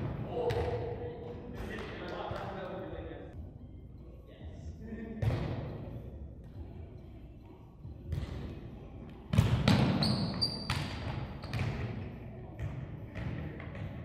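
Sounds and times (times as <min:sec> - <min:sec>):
high squeak: 0:10.0 - 0:10.7.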